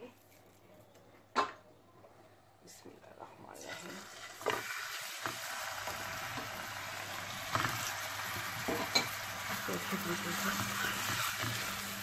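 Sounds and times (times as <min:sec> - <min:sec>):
meat sizzling in oil: 0:03.7 - 0:12.0.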